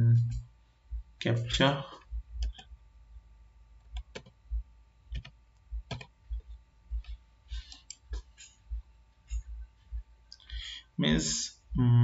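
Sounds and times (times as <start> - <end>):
keyboard keys clicking: 2.4 - 2.7, 3.8 - 4.4, 5.1 - 6.2.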